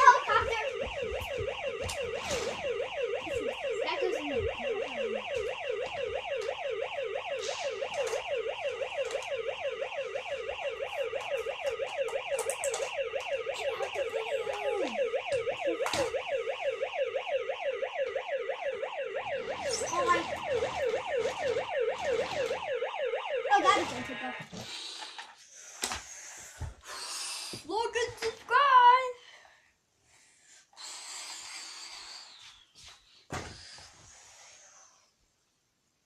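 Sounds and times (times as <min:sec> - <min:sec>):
toy fire truck siren yelping: 0:00.0 - 0:24.4.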